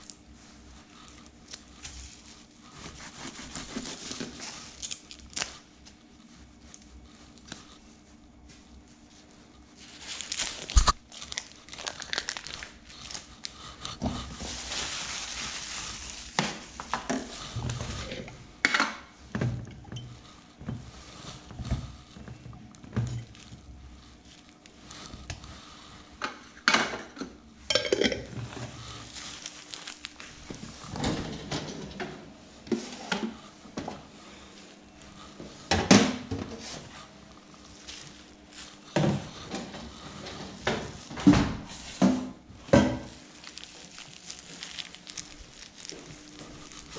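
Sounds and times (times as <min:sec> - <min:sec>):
plastic film crinkling: 0:00.0 - 0:07.8, 0:09.1 - 0:18.1, 0:28.7 - 0:30.9, 0:36.6 - 0:40.0, 0:43.0 - 0:46.9.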